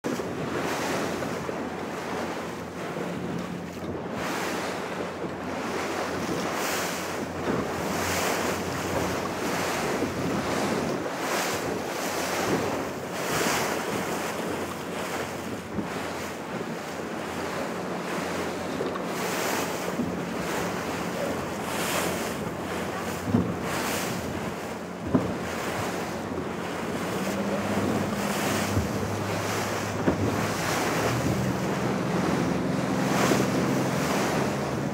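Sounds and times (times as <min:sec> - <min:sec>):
choppy ocean waves: 0:00.0 - 0:34.9
wind buffeting microphone: 0:00.0 - 0:34.9
outboard motor idling: 0:00.1 - 0:34.9.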